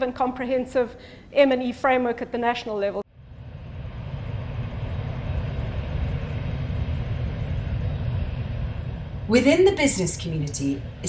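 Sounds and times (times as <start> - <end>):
gas flare burning rumble: 3.0 - 11.0.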